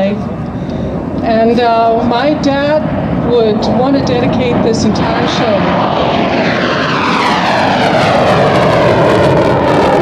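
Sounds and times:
jet engine roaring: 0:00.0 - 0:10.0
jet whine falling in pitch: 0:00.0 - 0:10.0.

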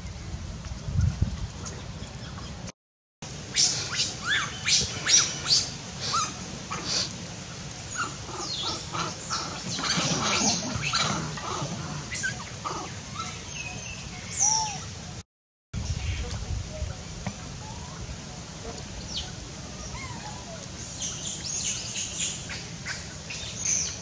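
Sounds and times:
animal chirps and squawks: 0:07.9 - 0:13.4.

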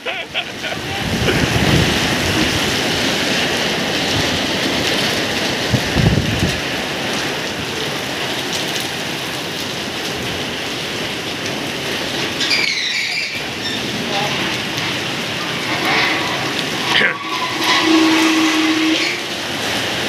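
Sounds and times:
wind gusting on microphone: 0:00.0 - 0:09.1
heavy rain pouring: 0:00.0 - 0:20.0.

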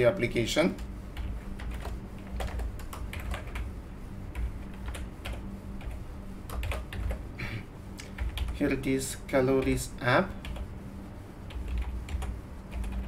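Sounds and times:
low steady hum: 0:00.0 - 0:13.0
keyboard typing clicks: 0:04.4 - 0:07.2.

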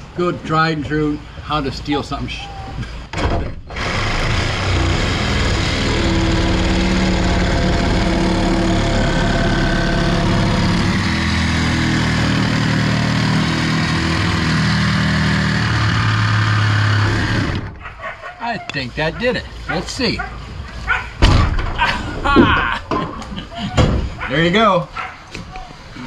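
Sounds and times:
reciprocating saw cutting nails: 0:03.7 - 0:21.1.

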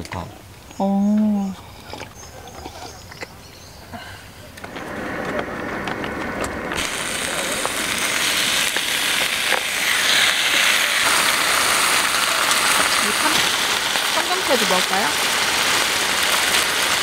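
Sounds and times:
chicken sizzling on a griddle: 0:06.8 - 0:17.0.

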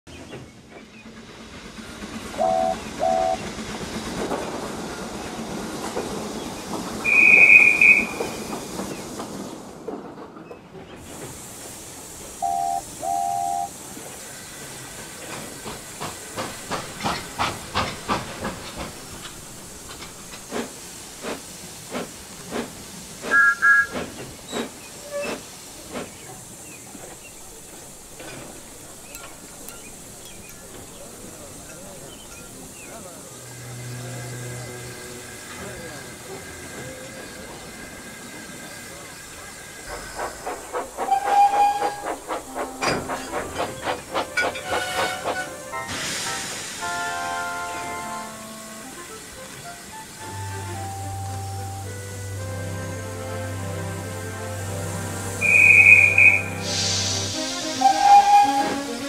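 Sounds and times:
steam hissing: 0:00.5 - 0:09.8, 0:10.9 - 0:59.0
low train whistle toots: 0:02.3 - 0:03.5, 0:07.0 - 0:08.5, 0:12.4 - 0:13.8, 0:23.2 - 0:24.0, 0:40.8 - 0:49.2, 0:50.2 - 0:59.0
shrill train whistle: 0:02.4 - 0:03.4, 0:07.0 - 0:08.4, 0:12.4 - 0:13.7, 0:23.3 - 0:24.0, 0:41.0 - 0:43.2, 0:44.4 - 0:48.9, 0:54.4 - 0:59.0
two-note high whistle: 0:07.1 - 0:08.2, 0:12.4 - 0:13.7, 0:55.4 - 0:56.8, 0:57.8 - 0:58.9.

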